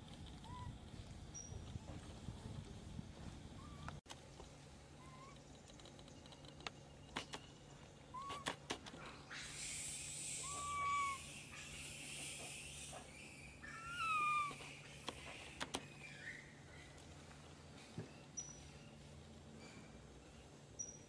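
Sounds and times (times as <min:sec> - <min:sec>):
monkeys squeaky calls: 0:05.0 - 0:05.4, 0:08.1 - 0:08.6, 0:09.3 - 0:15.4
steady high hiss: 0:06.9 - 0:15.4.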